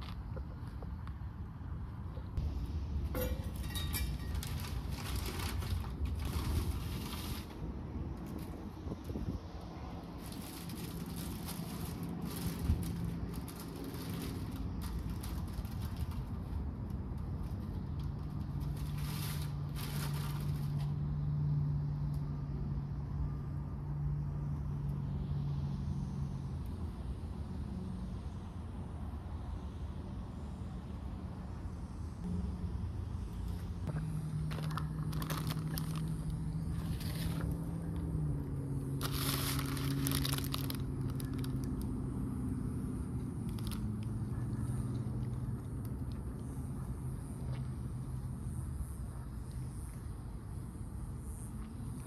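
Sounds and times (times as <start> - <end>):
vehicle engine humming: 0.0 - 52.0
paper wrapper crackling: 3.9 - 8.6, 10.1 - 20.9, 34.3 - 38.2, 38.8 - 42.0, 43.4 - 44.2.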